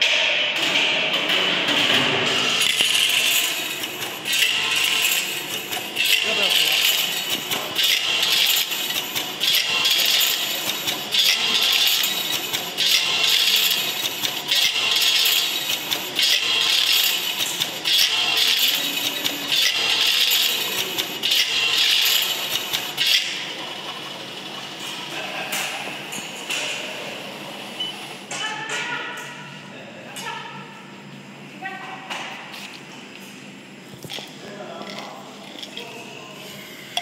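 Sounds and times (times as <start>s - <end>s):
tablets rattling into bottles: 2.6s - 23.2s.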